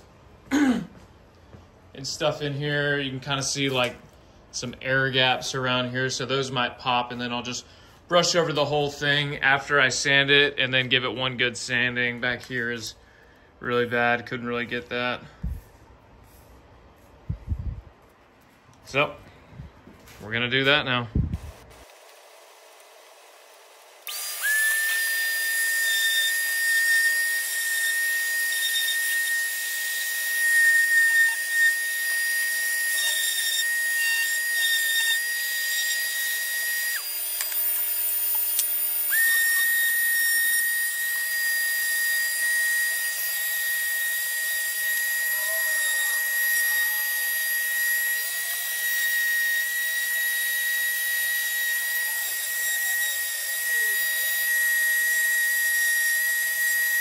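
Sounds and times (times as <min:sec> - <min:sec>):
orbital sander whining: 0:21.5 - 0:57.0.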